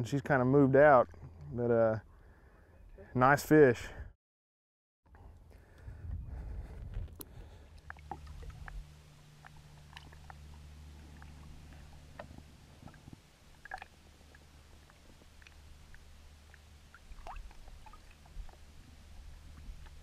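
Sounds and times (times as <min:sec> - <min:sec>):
low steady hum: 0:05.1 - 0:20.0
small drips and plinks: 0:07.2 - 0:20.0
water lapping against boat: 0:07.3 - 0:20.0.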